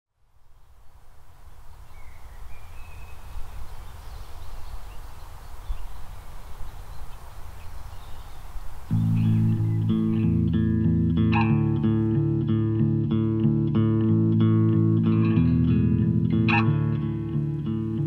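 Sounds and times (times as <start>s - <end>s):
faint bird chirps: 0.5s - 10.4s.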